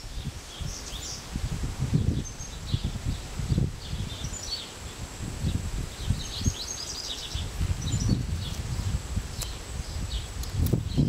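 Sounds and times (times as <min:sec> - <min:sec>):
small birds chirping: 0:00.0 - 0:11.0
wind buffeting microphone: 0:00.0 - 0:11.0.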